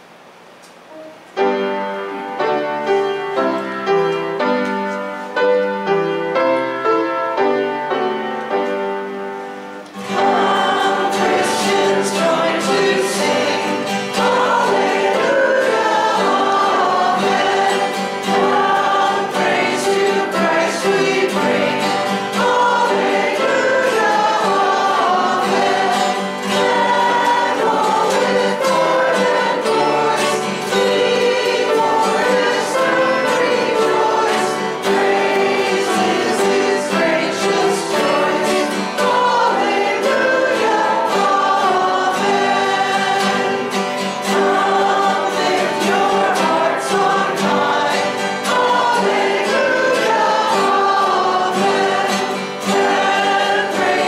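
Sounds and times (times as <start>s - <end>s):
congregation singing a hymn: 0.9s - 54.0s.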